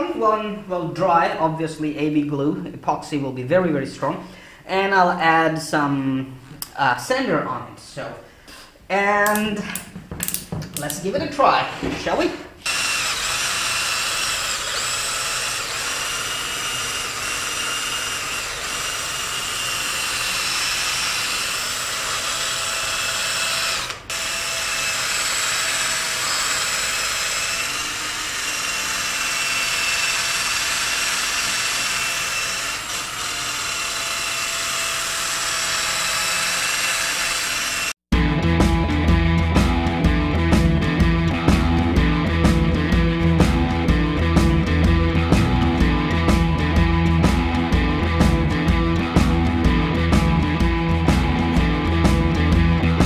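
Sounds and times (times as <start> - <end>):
cordless drill spinning polishing pad: 12.6 - 38.0.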